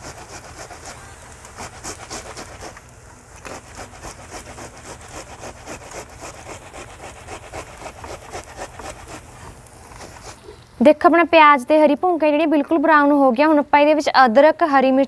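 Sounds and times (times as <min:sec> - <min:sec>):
tomato grated on metal grater: 0:00.0 - 0:10.5.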